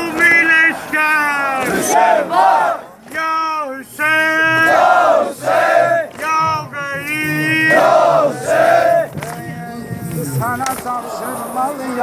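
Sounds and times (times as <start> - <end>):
men chanting in unison: 4.2 - 12.0.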